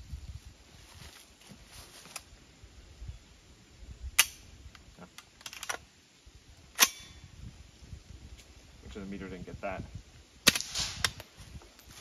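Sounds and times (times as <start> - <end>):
suppressed gunshot crack: 10.5 - 11.2.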